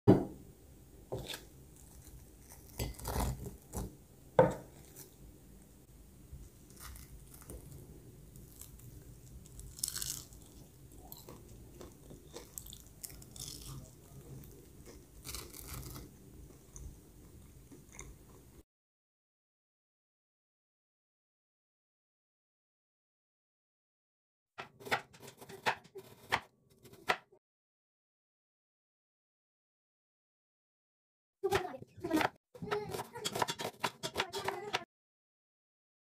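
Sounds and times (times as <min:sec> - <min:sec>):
crunchy bites: 0:06.7 - 0:16.1
chewing: 0:08.4 - 0:18.5.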